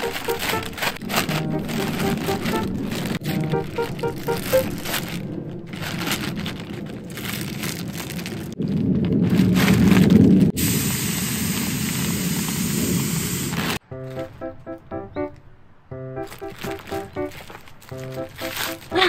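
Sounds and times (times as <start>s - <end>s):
plastic bag crinkling: 0.0s - 10.6s, 16.2s - 19.0s
air hissing from valve: 10.6s - 13.8s.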